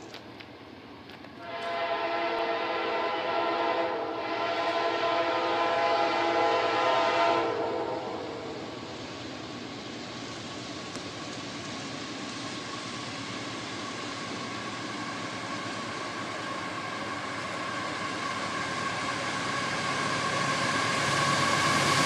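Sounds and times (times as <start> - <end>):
distant locomotive air horn: 1.4 - 8.7.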